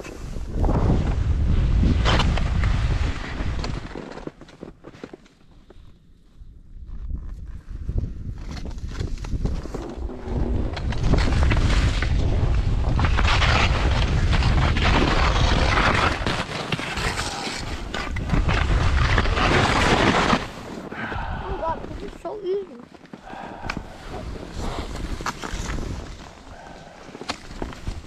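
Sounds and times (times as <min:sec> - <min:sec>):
wind buffeting microphone: 0:00.2 - 0:03.9, 0:06.8 - 0:16.2, 0:17.6 - 0:19.8, 0:20.8 - 0:22.3, 0:23.2 - 0:28.0
skis sliding through powder snow: 0:08.4 - 0:22.4, 0:23.0 - 0:28.0.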